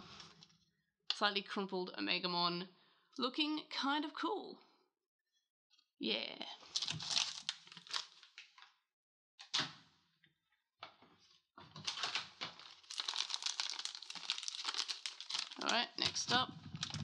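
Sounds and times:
plastic packet crinkling: 0:06.7 - 0:08.5, 0:11.8 - 0:17.0.

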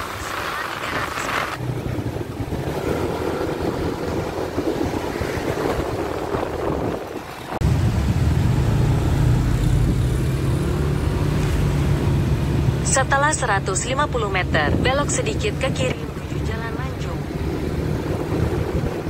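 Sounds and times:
surrounding traffic noise: 0:00.0 - 0:19.0
motor scooter engine: 0:01.6 - 0:12.8.

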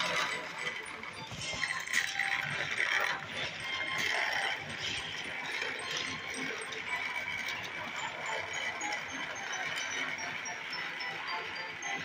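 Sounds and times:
toy train gear whirring: 0:00.0 - 0:12.0.

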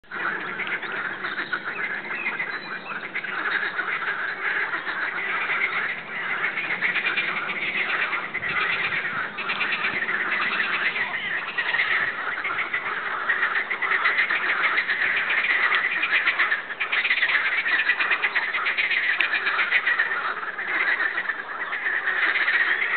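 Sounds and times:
ducks quacking: 0:00.0 - 0:22.9
frogs croaking: 0:00.0 - 0:22.9.

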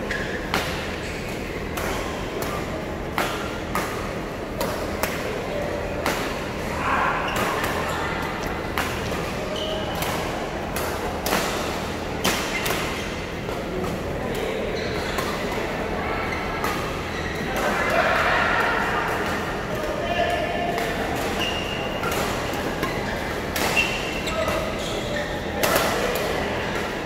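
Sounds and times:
badminton rackets hitting shuttlecock: 0:20.8 - 0:24.7.

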